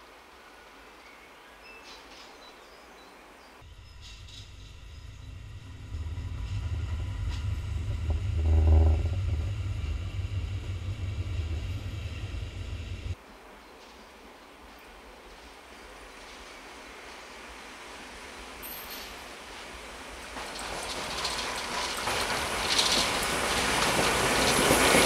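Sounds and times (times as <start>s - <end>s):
faint birdsong: 0.6s - 7.2s
steam train rumbling past: 3.6s - 13.2s, 19.2s - 25.0s.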